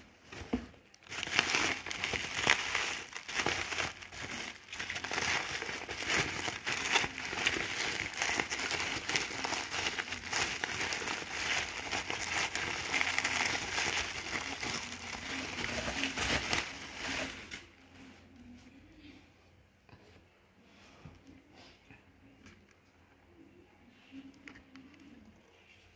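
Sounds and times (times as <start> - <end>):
bubble wrap crinkling: 0.3 - 17.8.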